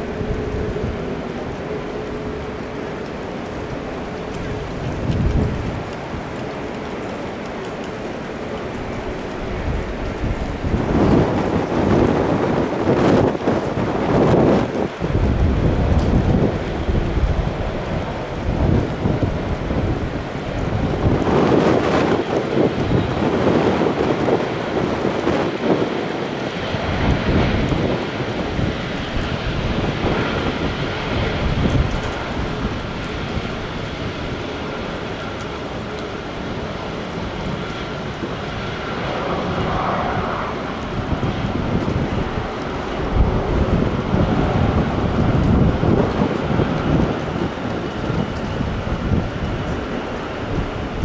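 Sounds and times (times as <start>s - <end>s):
jet engines passing: 0.0s - 51.0s
wind buffeting microphone: 0.0s - 51.0s.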